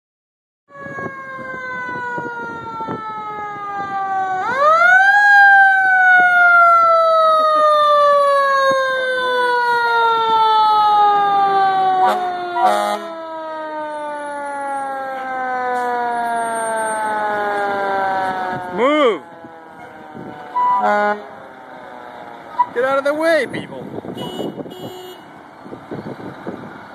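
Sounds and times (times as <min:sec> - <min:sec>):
mechanical siren wailing: 0:00.7 - 0:23.2
short horn blast: 0:12.1 - 0:13.1, 0:20.6 - 0:21.3.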